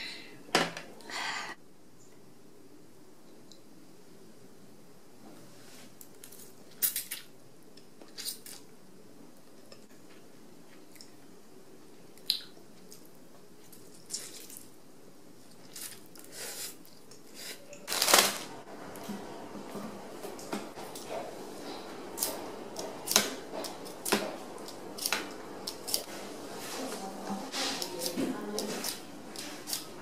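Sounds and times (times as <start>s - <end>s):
plastic bag rustling: 17.8s - 18.7s.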